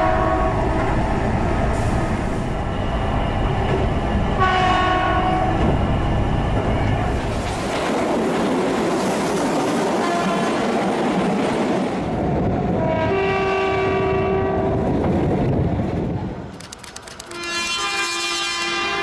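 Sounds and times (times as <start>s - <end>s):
train horn blast: 0.0s - 0.7s, 4.4s - 5.6s, 10.0s - 10.6s, 12.8s - 14.8s, 17.3s - 19.0s
train rushing past: 0.0s - 19.0s.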